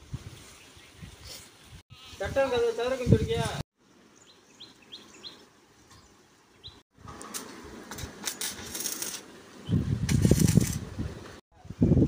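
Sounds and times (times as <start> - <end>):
bird chirps: 4.2 - 6.8.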